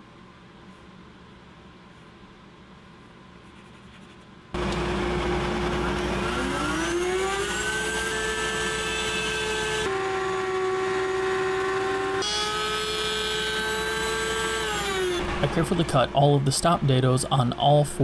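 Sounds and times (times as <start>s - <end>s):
dust collector running: 4.6s - 18.0s
router motor winding up: 5.6s - 15.5s.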